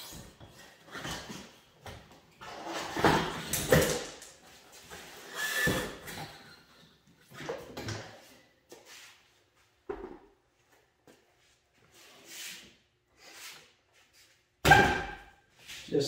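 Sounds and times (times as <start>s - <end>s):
short squeak: 5.3s - 6.8s.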